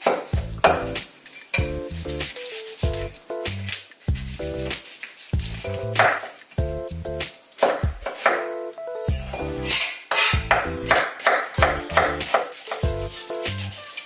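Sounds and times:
light background music: 0.0s - 14.0s
knife chopping on wooden board: 5.4s - 6.3s, 7.6s - 8.4s, 10.1s - 13.0s.

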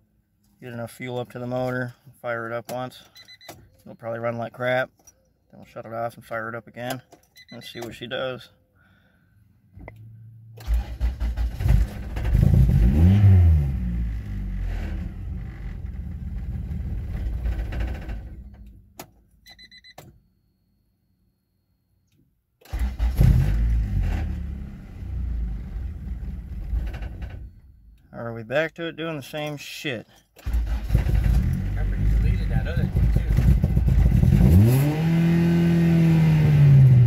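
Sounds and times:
short clicks and beeps: 2.7s - 4.2s, 6.8s - 8.2s, 18.5s - 20.3s
car engine cranking and revving: 9.8s - 18.8s, 22.6s - 27.4s, 30.4s - 37.0s.

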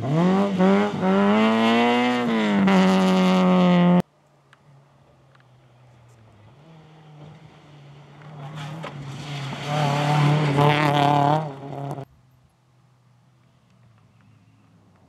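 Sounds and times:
rally car engine passing at speed: 0.0s - 4.0s, 6.2s - 12.1s.

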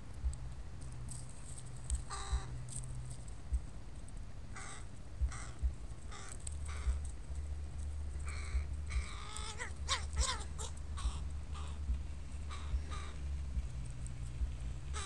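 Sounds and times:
crows cawing: 2.1s - 2.5s, 4.6s - 7.0s, 8.2s - 11.9s, 12.5s - 13.2s.

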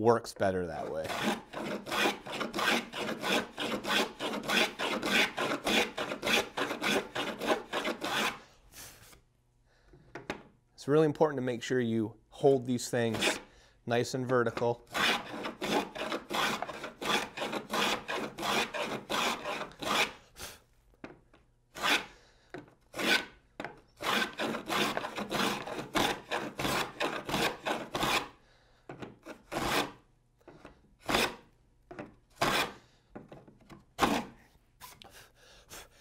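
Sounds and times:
hand plane shaving wood: 0.8s - 8.4s, 13.1s - 13.5s, 14.9s - 20.2s, 21.8s - 22.1s, 22.9s - 23.4s, 24.0s - 28.4s, 29.2s - 30.0s, 32.4s - 32.8s.

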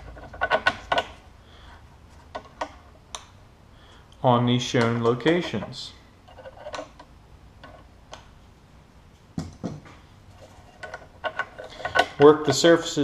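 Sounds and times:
metal parts clicking: 0.0s - 1.2s, 4.8s - 7.9s, 10.4s - 12.6s.

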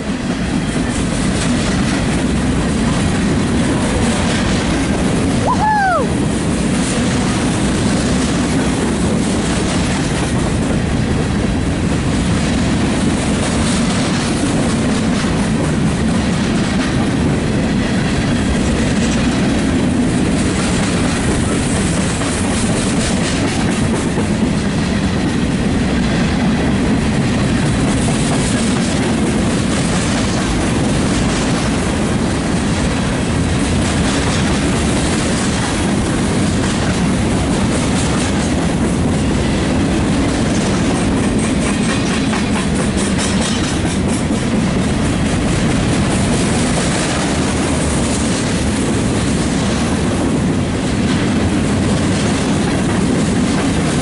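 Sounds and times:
clickety-clack over rail joints: 0.0s - 5.5s, 6.1s - 54.0s
freight train wheels rumbling: 0.0s - 54.0s.

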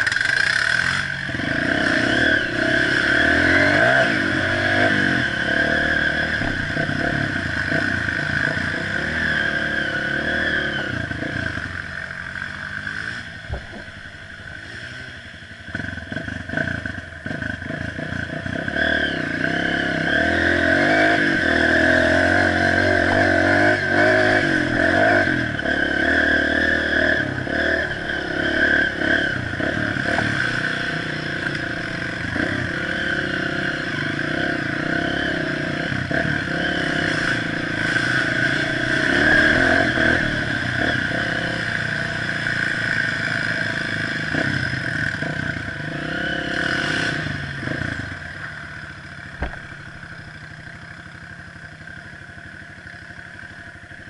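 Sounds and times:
dirt bike engine running: 0.0s - 54.0s
bike knocks and rattles: 6.4s - 7.2s, 13.4s - 14.2s, 49.3s - 49.9s.

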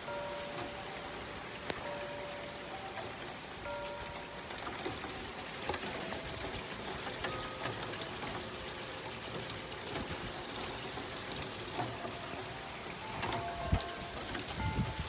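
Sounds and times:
metal wind chimes ringing: 0.0s - 4.5s, 11.7s - 15.0s
rain falling: 0.0s - 15.0s.

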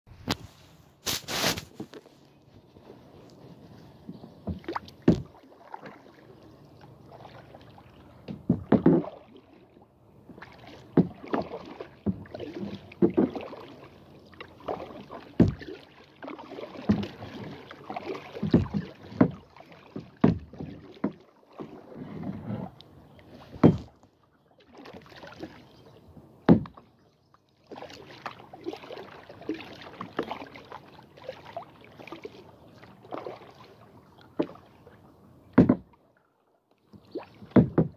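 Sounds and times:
paddle splashing through water: 0.1s - 37.9s
sharp knocks: 35.6s - 35.9s.

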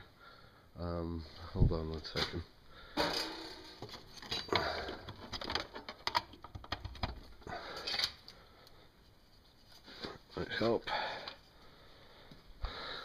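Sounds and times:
rummaging on a workbench: 3.0s - 8.2s.

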